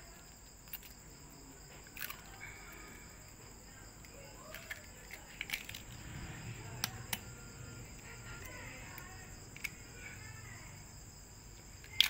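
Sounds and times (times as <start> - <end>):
faint chirping: 0.0 - 12.0
eggshell cracking: 0.1 - 6.1.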